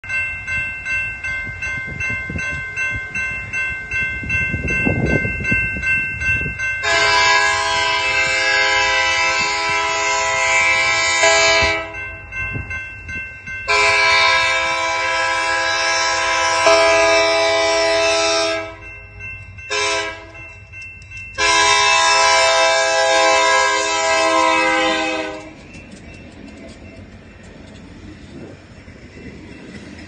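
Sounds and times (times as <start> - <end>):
crossing bell ringing: 0.0 - 30.0
locomotive air horn blasts: 6.8 - 12.0, 13.7 - 18.8, 19.7 - 20.4, 21.4 - 25.6.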